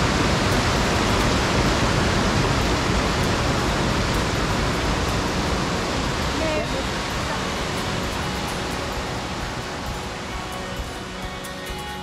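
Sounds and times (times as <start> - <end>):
river rushing over rocks: 0.0 - 12.0.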